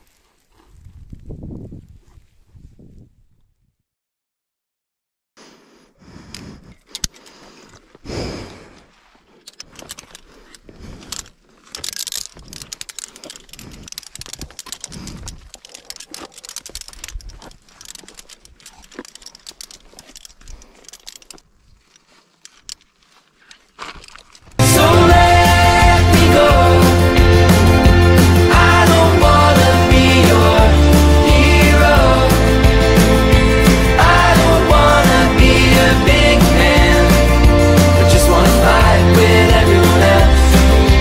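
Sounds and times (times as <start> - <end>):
chain and carabiners clinking: 9.4 - 22.9
low bumps: 24.5 - 41.0.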